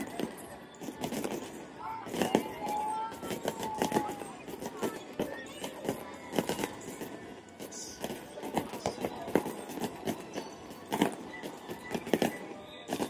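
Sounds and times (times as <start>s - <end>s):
fireworks exploding: 0.0s - 1.5s, 2.1s - 7.1s, 7.7s - 13.0s.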